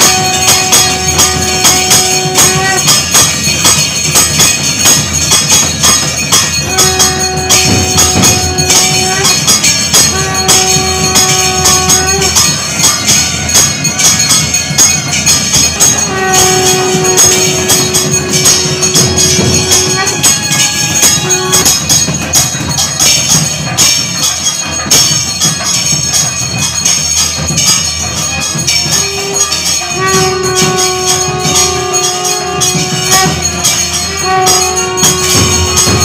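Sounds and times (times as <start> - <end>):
bells and cymbals clanging: 0.0 - 36.0
wind instrument held note: 15.9 - 21.7.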